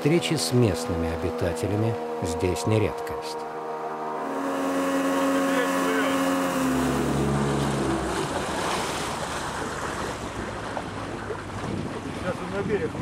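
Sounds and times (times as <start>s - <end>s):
outboard motor: 0.0s - 13.0s
river water rushing: 3.7s - 11.8s
wind on microphone: 6.6s - 13.0s.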